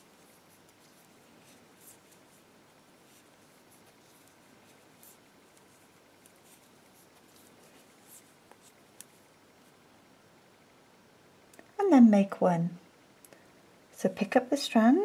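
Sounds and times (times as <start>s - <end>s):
low room hiss: 0.0s - 15.0s
knitting needles clicking: 8.5s - 9.2s.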